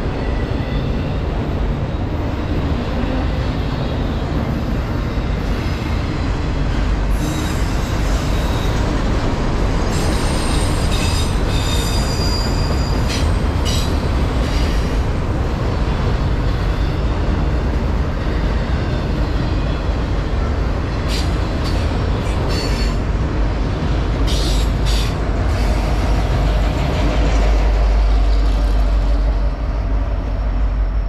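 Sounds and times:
freight train wheels rumbling: 0:00.0 - 0:31.0
high-pitched wheel squeals: 0:09.9 - 0:14.8.

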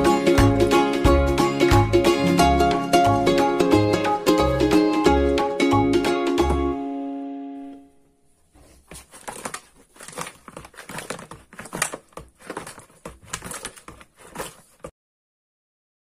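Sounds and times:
cling film crinkling: 0:08.5 - 0:14.9.

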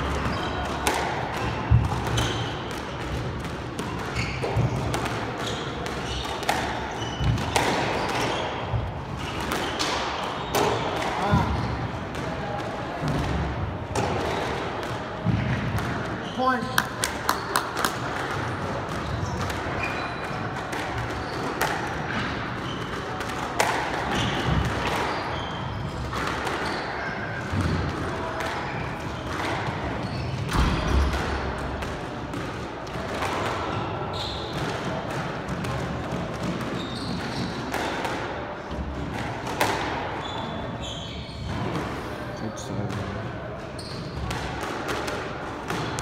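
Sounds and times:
squash ball thuds: 0:00.0 - 0:16.2, 0:27.3 - 0:40.1
echoing room noise: 0:00.0 - 0:46.0
shoe squeaks on hardwood floor: 0:02.0 - 0:02.7, 0:04.0 - 0:11.8, 0:16.2 - 0:17.7, 0:18.9 - 0:20.5, 0:21.1 - 0:21.6, 0:24.1 - 0:27.4, 0:29.9 - 0:31.2, 0:33.8 - 0:34.7, 0:36.6 - 0:37.7, 0:40.2 - 0:42.2, 0:43.6 - 0:44.4.

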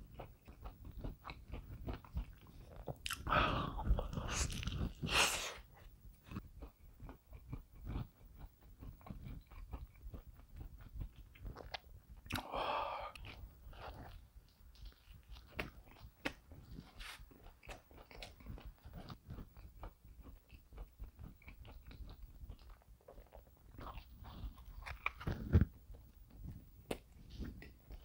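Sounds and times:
chewing with wet mouth clicks: 0:00.0 - 0:03.3, 0:06.2 - 0:12.5, 0:13.1 - 0:16.7, 0:17.3 - 0:26.0.

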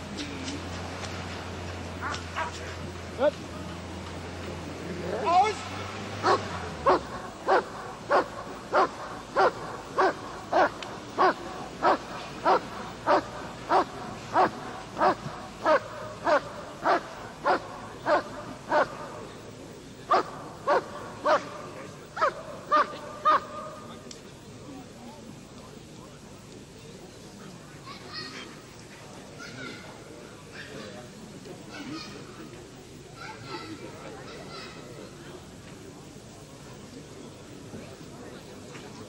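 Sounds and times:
dog barking: 0:06.2 - 0:18.9, 0:20.1 - 0:21.4.

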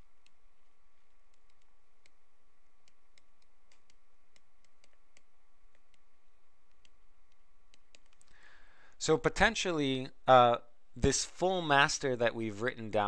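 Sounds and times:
faint steady hum: 0:00.0 - 0:13.0
stylus tapping on a tablet: 0:00.2 - 0:02.2, 0:02.8 - 0:08.2.

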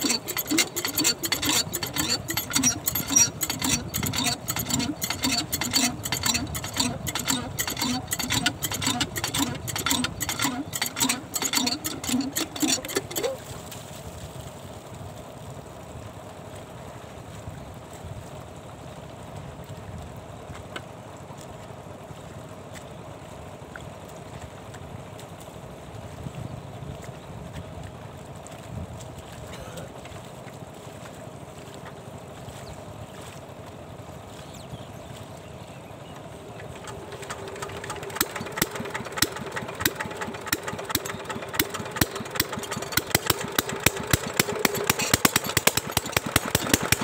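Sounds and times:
short rising squeak: 0:00.0 - 0:13.4
hand-lever pump strokes: 0:00.0 - 0:13.6, 0:36.7 - 0:47.0.

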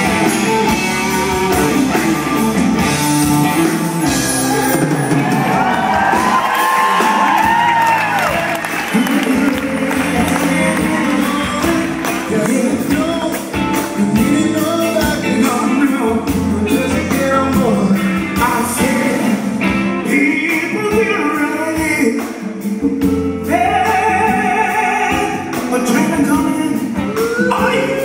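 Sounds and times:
drums: 0:00.0 - 0:28.0
electric guitars: 0:00.0 - 0:28.0
men singing: 0:08.7 - 0:22.2, 0:23.4 - 0:28.0.

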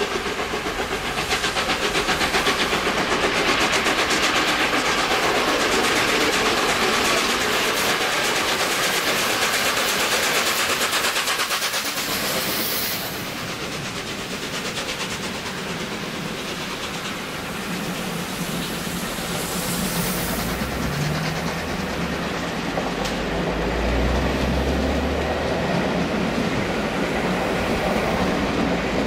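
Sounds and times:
rushing rumble of train: 0:00.0 - 0:29.0
steam locomotive exhaust beats: 0:00.0 - 0:29.0
train wheels clicking over rail joints: 0:00.0 - 0:29.0.

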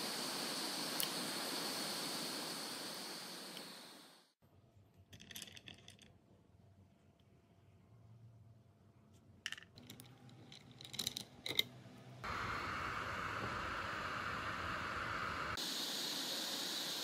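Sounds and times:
hot air gun hissing: 0:00.0 - 0:04.4, 0:12.2 - 0:17.0.

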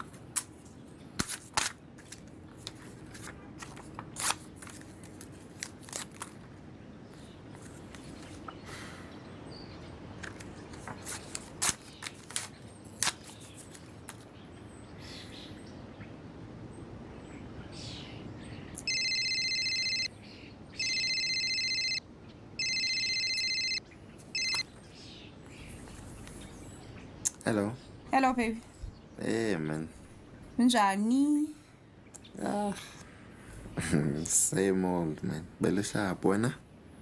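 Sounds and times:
phone ringtone: 0:18.8 - 0:20.1, 0:20.8 - 0:22.0, 0:22.6 - 0:24.7.

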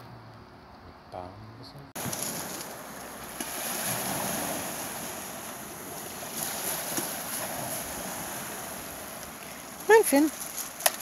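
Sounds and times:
waves washing on pebble beach: 0:02.0 - 0:11.0.

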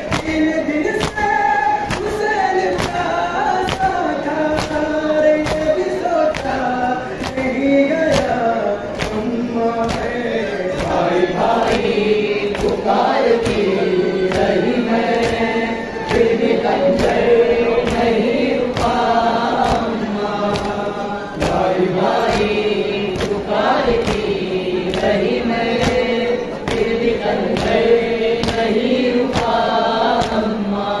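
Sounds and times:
men chanting in unison: 0:00.0 - 0:31.0.

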